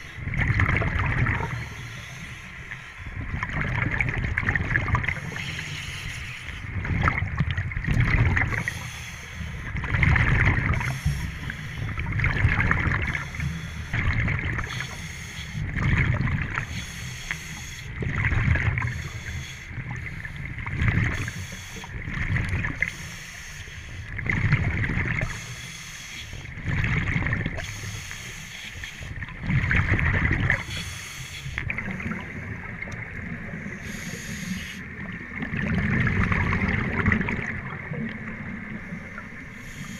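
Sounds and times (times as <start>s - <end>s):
bubbles gurgling: 0.0s - 1.8s, 3.2s - 5.5s, 6.8s - 8.8s, 9.8s - 11.0s, 11.9s - 14.8s, 15.7s - 16.7s, 18.0s - 19.0s, 19.8s - 21.3s, 21.9s - 22.9s, 24.2s - 25.4s, 26.6s - 27.7s, 29.2s - 30.7s, 31.6s - 34.1s, 34.8s - 39.3s
scuba regulator breathing: 1.4s - 3.3s, 5.1s - 6.8s, 8.4s - 9.8s, 10.7s - 12.1s, 13.0s - 14.0s, 14.6s - 15.8s, 16.6s - 18.0s, 18.8s - 22.0s, 22.8s - 24.2s, 25.2s - 26.6s, 27.6s - 29.2s, 30.5s - 34.9s, 38.7s - 39.9s.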